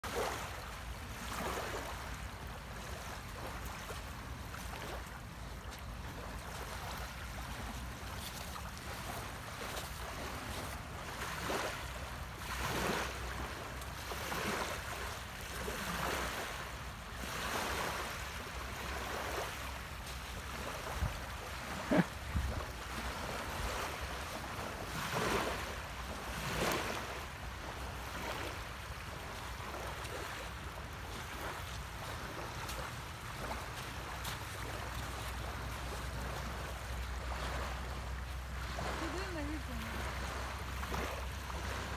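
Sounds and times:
small waves washing onto sand: 0.0 - 41.9
wind rumble on microphone: 22.2 - 23.8.

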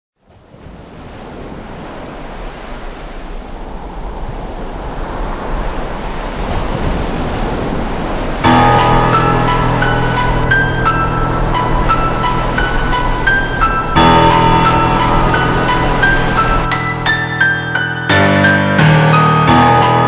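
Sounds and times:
rushing noise: 2.6 - 17.8.

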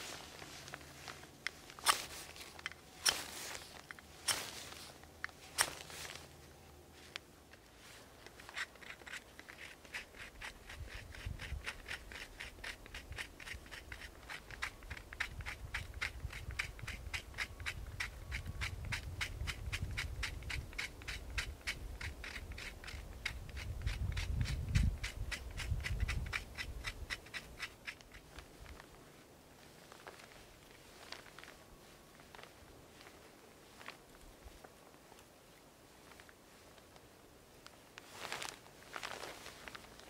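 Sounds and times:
knife scraping ferro rod: 8.3 - 28.2.

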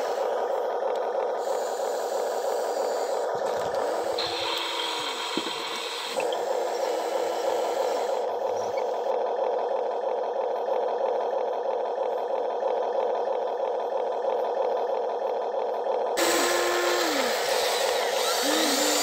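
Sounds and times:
toy electric motors whirring: 0.0 - 9.2, 16.2 - 19.0.

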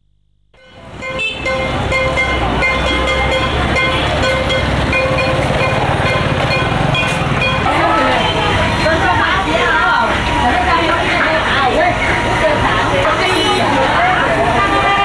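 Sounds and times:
car horn toots: 0.6 - 8.7, 14.6 - 15.0
motor vehicles running: 0.6 - 15.0.

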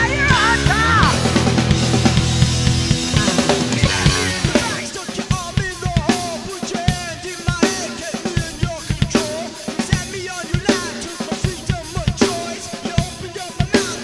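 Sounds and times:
lead electric guitar bending notes: 0.0 - 4.8
drum kit steady beat: 0.0 - 14.0.

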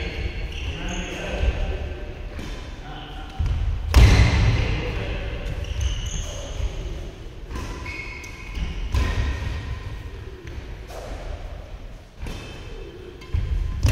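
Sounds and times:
shoes squeaking on court: 0.1 - 1.5, 5.4 - 9.6
racket striking shuttlecock: 7.4 - 11.4.

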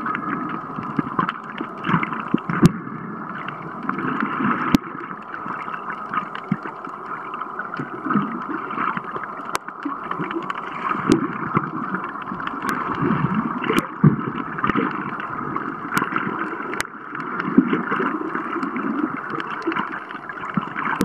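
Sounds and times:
muffled underwater water wash: 0.0 - 21.0.

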